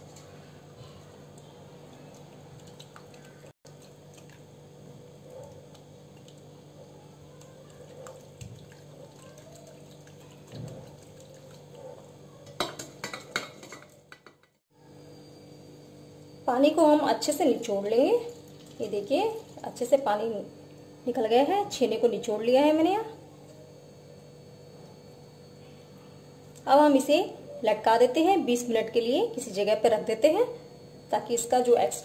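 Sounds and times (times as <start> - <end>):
wet cloth squelching and dripping: 1.9 - 4.5, 7.4 - 11.8.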